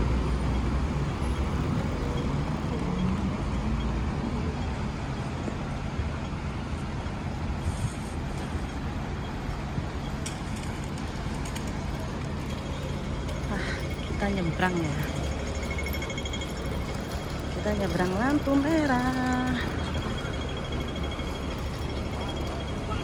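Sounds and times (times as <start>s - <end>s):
bus and car engines: 0.0s - 23.0s
low traffic rumble: 0.0s - 23.0s.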